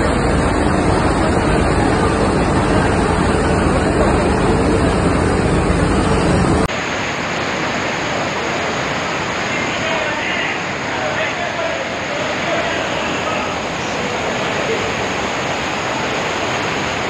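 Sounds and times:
floodwater rushing: 0.0 - 17.0
waterfall tumbling down rocks: 6.6 - 17.0.

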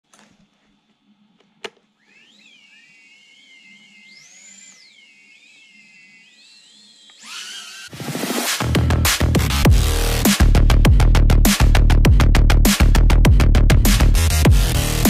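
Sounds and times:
drone motors whining: 2.0 - 10.2.

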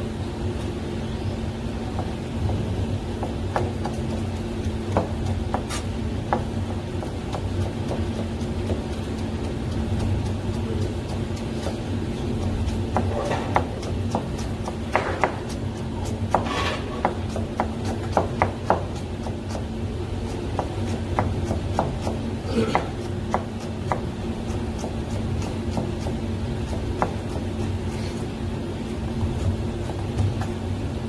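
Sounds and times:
steady low hum: 0.0 - 31.0
knife chopping on cutting board: 4.9 - 19.7, 20.3 - 27.5.

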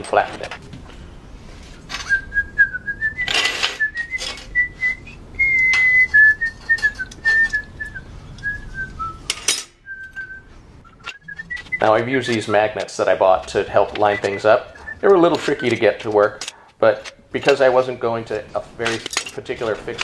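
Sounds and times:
person whistling a tune: 2.0 - 12.0, 14.0 - 15.8
steel tubes clinking on table: 3.3 - 4.6, 9.3 - 9.8.

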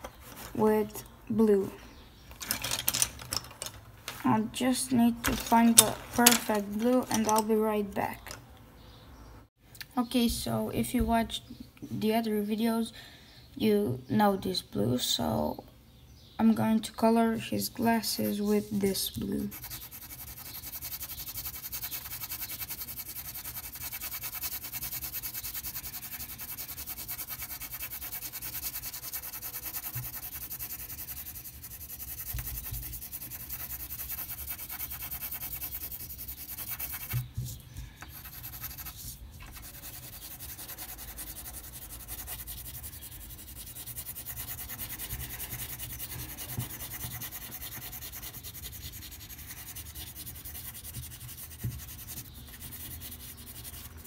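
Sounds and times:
pencil scratching on paper: 18.9 - 54.0.

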